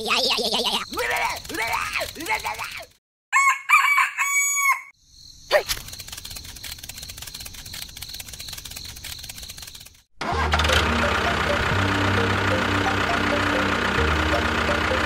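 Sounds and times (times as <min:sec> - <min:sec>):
rooster crowing: 0:03.3 - 0:05.0
steady noise with fine ticking: 0:05.8 - 0:10.1.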